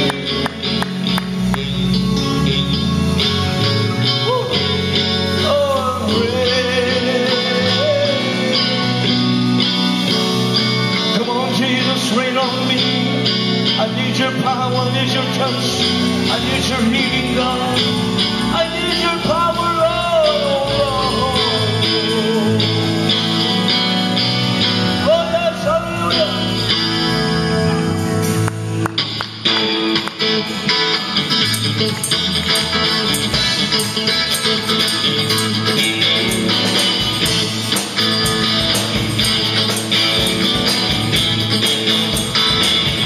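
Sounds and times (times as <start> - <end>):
man singing: 0.0 - 3.2, 4.1 - 9.6, 11.0 - 23.9, 25.0 - 26.9
electric guitar: 0.0 - 43.0.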